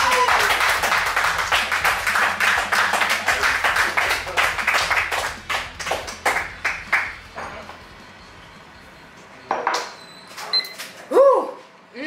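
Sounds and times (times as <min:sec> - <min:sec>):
people clapping: 0:00.0 - 0:07.8.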